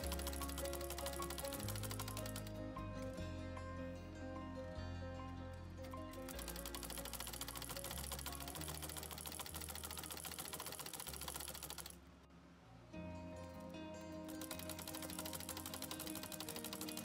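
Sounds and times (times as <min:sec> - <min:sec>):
sewing machine needle clicking: 0:00.0 - 0:02.6, 0:05.9 - 0:12.0, 0:14.3 - 0:17.0
background music: 0:00.0 - 0:17.0.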